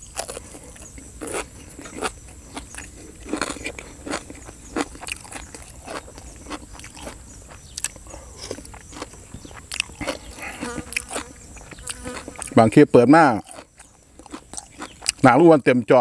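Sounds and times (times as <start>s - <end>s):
wet crunchy chewing: 0.0s - 15.4s.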